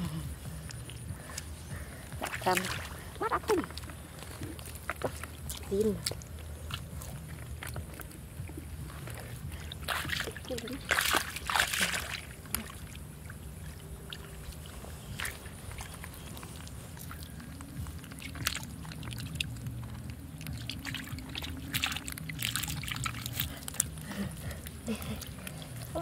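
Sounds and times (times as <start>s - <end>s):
low rumble: 0.0s - 26.0s
fish splashing in bucket: 9.6s - 24.2s.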